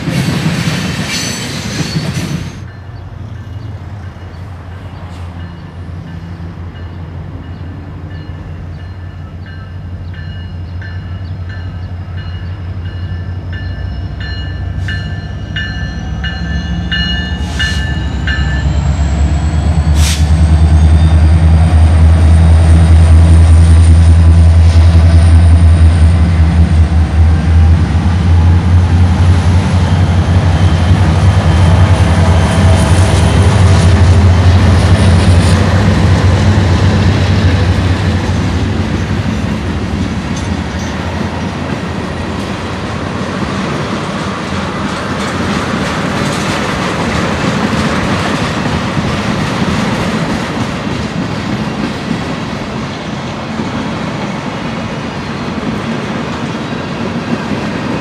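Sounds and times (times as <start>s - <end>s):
diesel locomotive engines droning: 0.0s - 58.0s
train wheels on rails: 0.0s - 58.0s
locomotive bell ringing: 2.6s - 19.9s.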